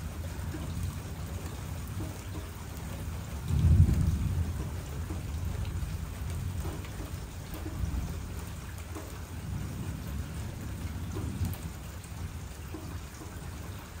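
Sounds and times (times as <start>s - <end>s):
steady rain falling: 0.0s - 14.0s
distant thunder rumble: 3.1s - 13.9s.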